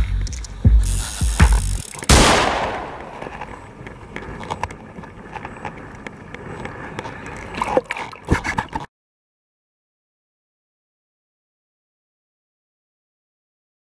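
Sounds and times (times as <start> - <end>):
sea water sloshing: 3.6 - 8.9.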